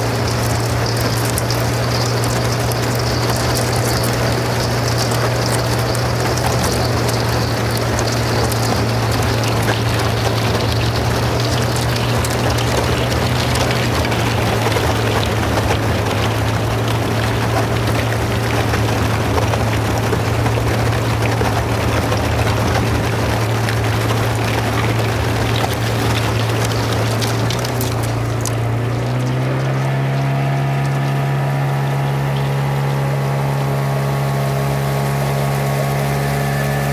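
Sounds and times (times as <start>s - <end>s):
ice cracking and clinking: 0.0s - 33.1s
boat motor humming: 0.0s - 36.9s.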